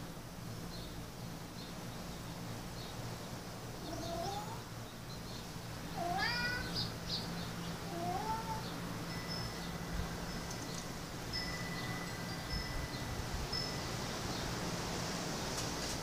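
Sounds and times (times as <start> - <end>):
cat meowing: 3.9 - 4.6, 6.0 - 6.8, 7.9 - 8.7.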